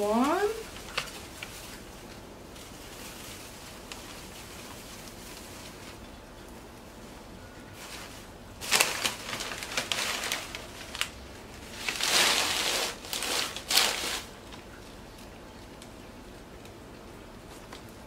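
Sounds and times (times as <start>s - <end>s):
paper crinkling and rustling: 0.0s - 16.8s.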